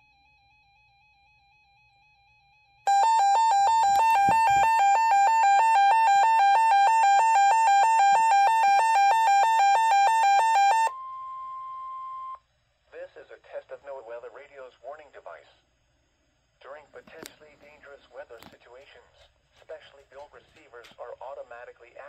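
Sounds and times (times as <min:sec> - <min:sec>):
harsh two-pitch alarm beeping: 0:02.9 - 0:12.4.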